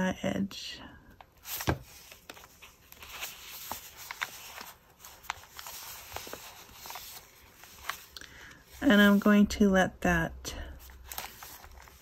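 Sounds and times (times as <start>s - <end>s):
paper rustling: 1.3s - 9.2s, 10.8s - 12.0s.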